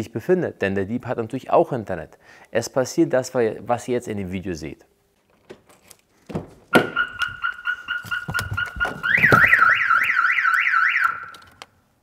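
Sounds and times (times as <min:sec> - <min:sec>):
car alarm beeping and warbling siren: 0:06.7 - 0:11.5.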